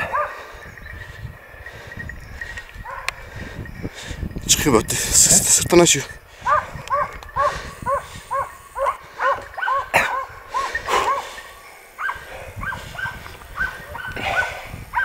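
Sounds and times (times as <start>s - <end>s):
dogs barking: 0.0s - 0.5s, 2.8s - 3.3s, 6.4s - 15.0s.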